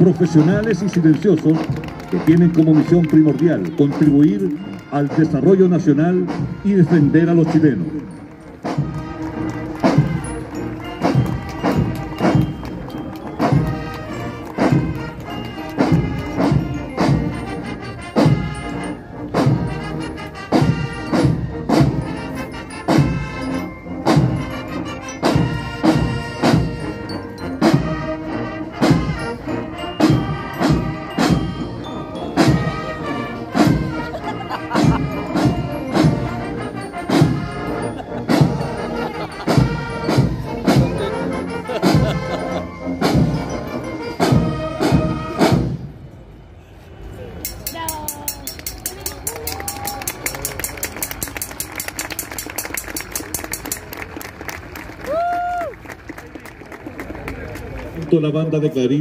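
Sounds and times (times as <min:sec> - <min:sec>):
marching drums: 0:00.0 - 0:45.9
held brass notes: 0:00.0 - 0:46.6.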